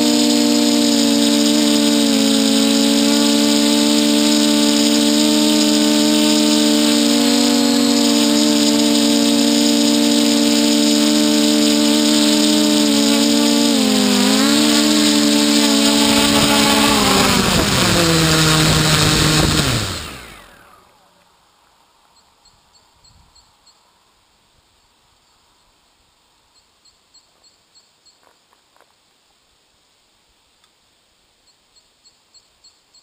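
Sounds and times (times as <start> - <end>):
drone motors and propellers whining: 0.0 - 21.2.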